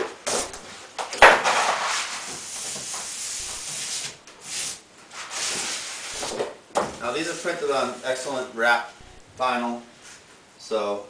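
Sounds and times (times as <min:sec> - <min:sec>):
vinyl sheet rustling and crackling: 0:00.0 - 0:06.6.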